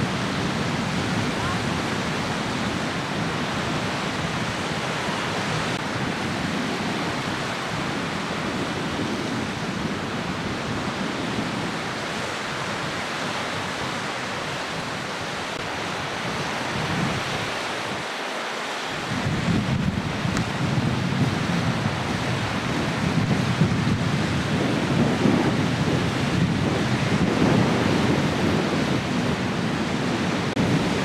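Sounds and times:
small waves breaking on beach: 0.0 - 31.0
wind rushing: 18.9 - 31.0.

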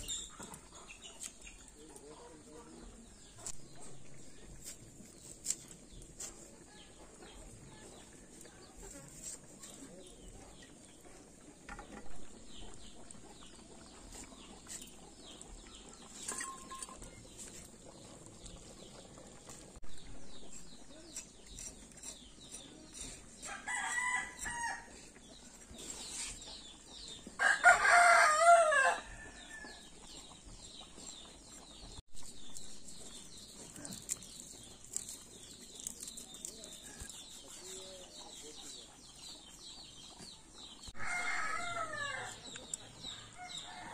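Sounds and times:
rooster crowing: 27.4 - 29.6, 41.0 - 42.4.

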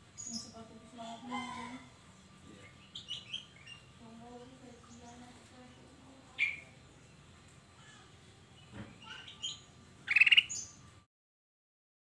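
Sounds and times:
bird calling and chirping: 0.1 - 1.9, 2.6 - 4.0, 6.3 - 7.2, 8.6 - 10.9.

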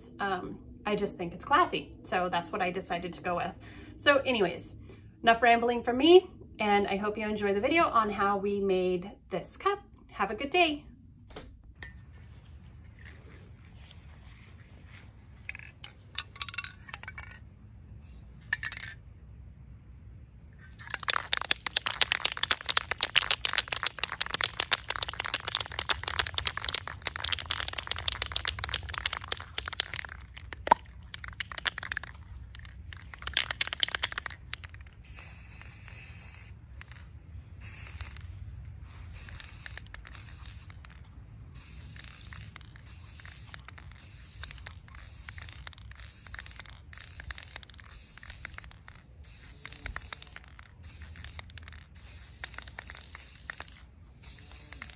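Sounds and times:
spray can ball rattling: 15.4 - 17.5, 18.1 - 19.0, 20.6 - 54.9
spray nozzle hissing: 20.8 - 37.0, 37.6 - 38.3, 39.0 - 41.0, 41.6 - 54.9.

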